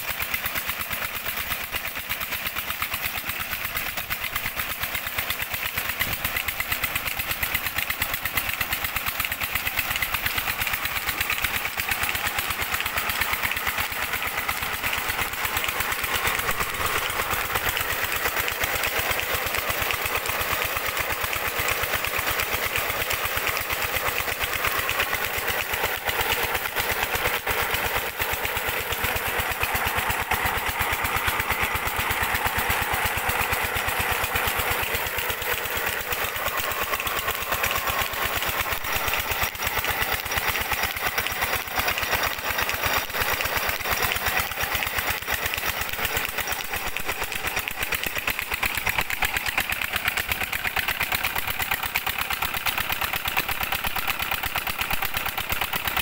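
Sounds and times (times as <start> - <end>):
diesel engine running: 0.0 - 56.0
water pouring and splashing: 5.5 - 30.1.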